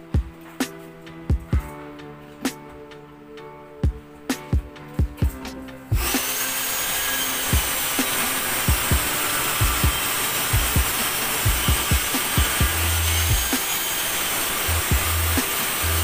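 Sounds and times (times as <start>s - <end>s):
background music with beat: 0.0s - 16.0s
circular saw cutting plywood: 6.0s - 16.0s.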